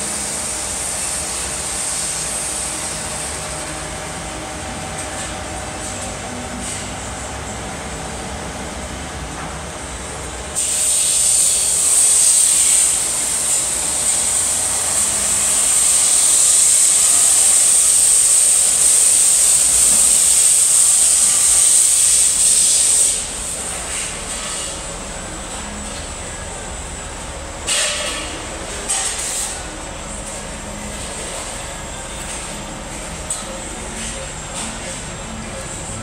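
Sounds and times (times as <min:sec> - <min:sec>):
loud high-pitched hiss: 0:00.0 - 0:04.2, 0:10.6 - 0:31.0.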